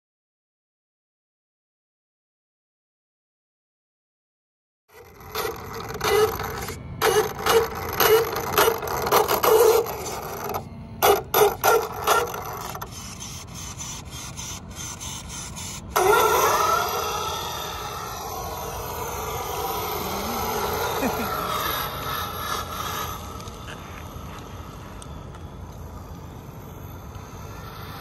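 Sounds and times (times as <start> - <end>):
electric motor whining: 4.9 - 28.0
tyres scrubbing on pavement: 11.4 - 25.0.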